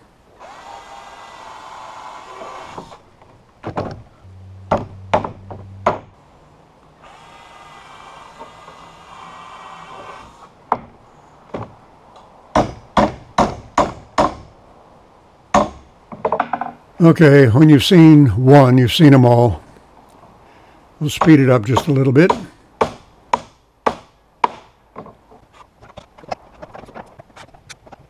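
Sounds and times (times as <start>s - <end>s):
cordless drill boring into wood: 0.4s - 3.0s, 7.0s - 10.5s
hammer driving nails: 4.7s - 6.1s.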